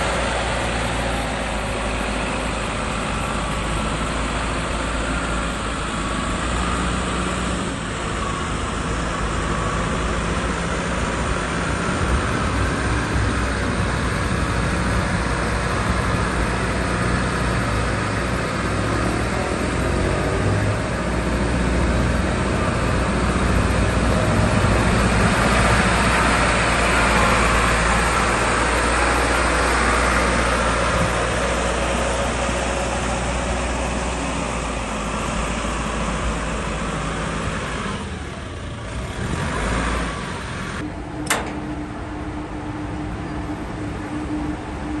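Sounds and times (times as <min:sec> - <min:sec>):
diesel engine running: 0:00.0 - 0:45.0
sharp click: 0:41.2 - 0:41.6.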